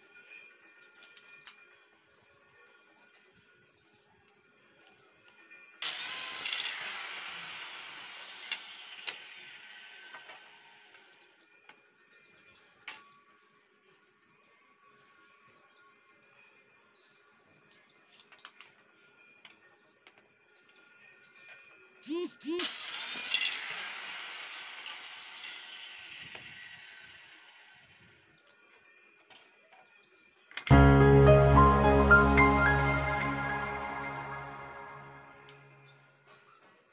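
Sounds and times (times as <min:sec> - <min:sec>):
circular saw cutting plywood: 0:05.8 - 0:11.0, 0:22.6 - 0:27.8.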